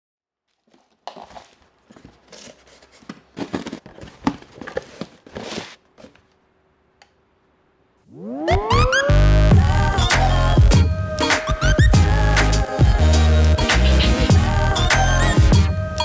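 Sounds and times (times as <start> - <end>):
packing paper crinkling: 0.5 - 6.4.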